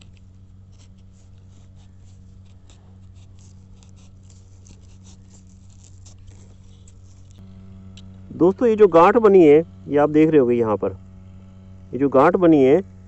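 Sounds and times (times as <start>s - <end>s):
knife scraping a stem: 0.0s - 8.2s
low hum: 0.0s - 13.0s.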